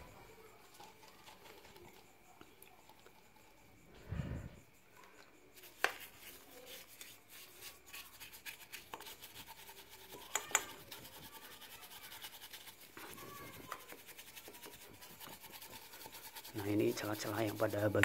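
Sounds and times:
brush scrubbing metal fins: 0:00.0 - 0:03.7, 0:05.5 - 0:18.0
brush knocking on metal fins: 0:10.2 - 0:11.0.

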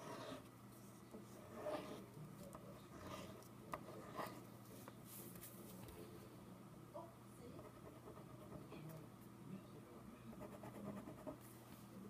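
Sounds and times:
pencil scratching on paper: 0:00.0 - 0:00.5, 0:01.3 - 0:02.1, 0:02.8 - 0:04.4, 0:07.6 - 0:08.7, 0:10.3 - 0:11.4.

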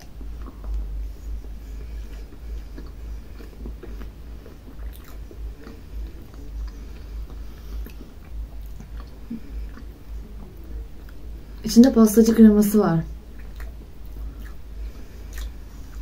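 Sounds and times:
people chewing: 0:00.0 - 0:11.6, 0:13.2 - 0:16.0
low pulsing rumble: 0:00.0 - 0:16.0
wet mouth clicks: 0:13.4 - 0:14.6, 0:15.3 - 0:15.6.

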